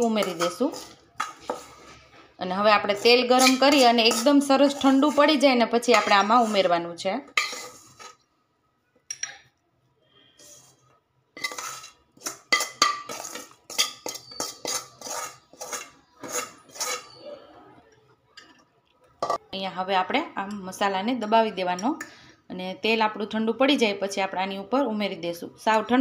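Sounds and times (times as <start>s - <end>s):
metal spoon scraping steel plate: 0.0s - 2.1s, 2.7s - 8.2s, 11.4s - 17.2s.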